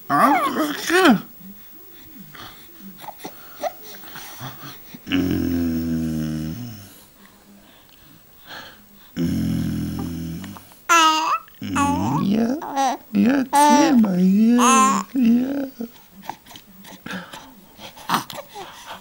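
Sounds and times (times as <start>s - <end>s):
baby grunting: 0.1s - 1.3s, 9.2s - 15.8s.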